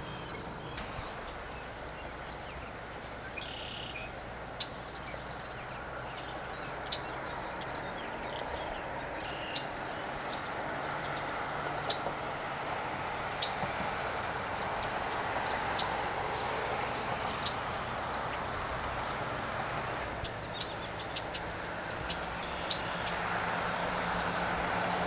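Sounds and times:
bird chirps and calls: 0:00.0 - 0:12.0.

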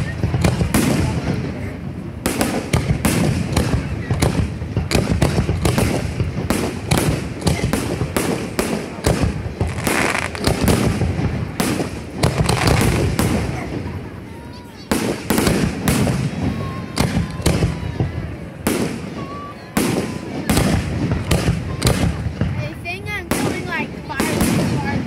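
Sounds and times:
fireworks bangs: 0:00.0 - 0:25.0.

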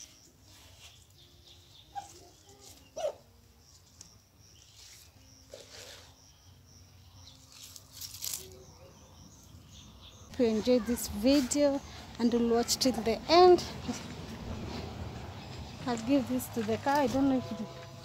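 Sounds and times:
leaves rustling and snapping: 0:07.3 - 0:08.7.

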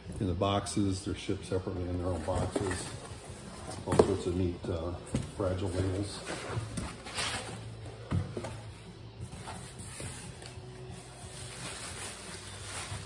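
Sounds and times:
plastic wrapping rustling: 0:09.3 - 0:13.0.

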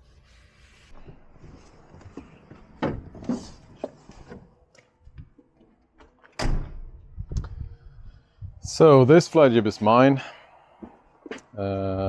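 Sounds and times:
truck door slamming: 0:06.4 - 0:06.9.

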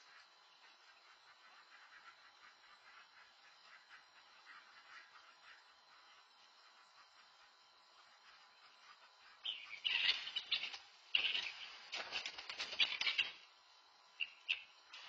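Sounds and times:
ducks quacking: 0:00.0 - 0:11.6
wings flapping: 0:09.7 - 0:13.5.

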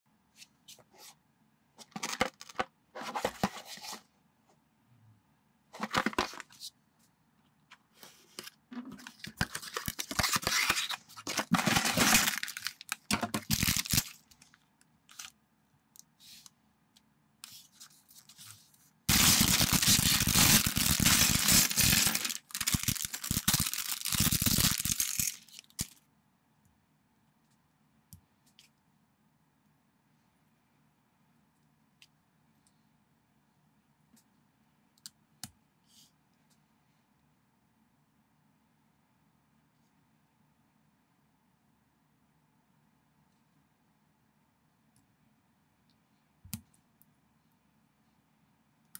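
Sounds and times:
packaging rustling and tearing: 0:08.9 - 0:14.5, 0:19.1 - 0:26.0
plastic pieces rattling onto table: 0:11.3 - 0:14.1, 0:19.1 - 0:26.0.

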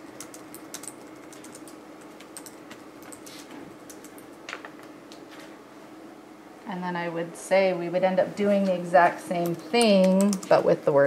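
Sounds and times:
keyboard typing: 0:00.0 - 0:04.3, 0:09.4 - 0:10.7
faint steady hum: 0:00.0 - 0:11.0.

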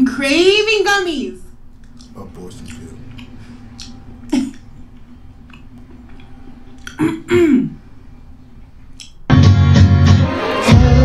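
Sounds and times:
faint steady hum: 0:00.0 - 0:09.3
person clearing throat: 0:06.9 - 0:07.8.

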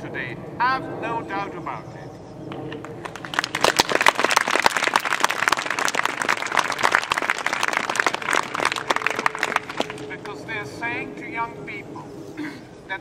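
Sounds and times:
crowd applauding: 0:02.8 - 0:10.1.

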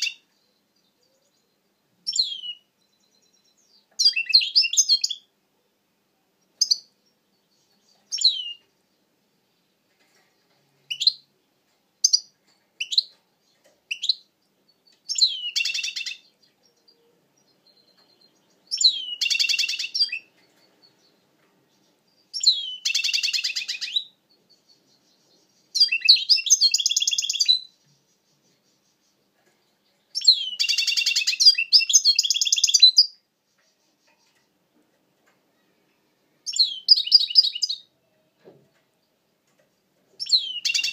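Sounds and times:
goldfinch twittering song: 0:00.0 - 0:05.3, 0:12.0 - 0:34.4, 0:36.5 - 0:37.9, 0:40.2 - 0:40.9.

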